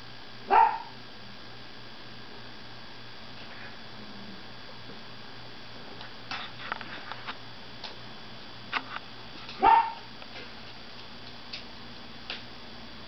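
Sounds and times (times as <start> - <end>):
dog yip: 0.5 - 0.9, 9.6 - 10.1.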